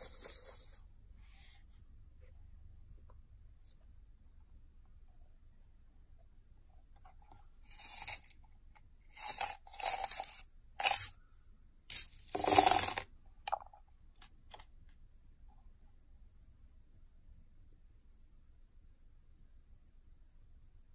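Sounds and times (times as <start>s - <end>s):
coins clinking: 0.0s - 0.8s, 7.7s - 8.3s, 9.2s - 11.2s, 11.9s - 13.6s.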